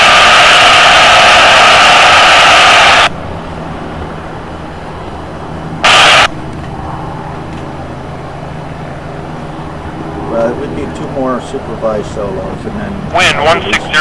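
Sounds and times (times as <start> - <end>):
radio static hiss: 0.0 - 3.1, 5.6 - 8.2, 10.2 - 14.0
light plane engine hum: 0.0 - 14.0.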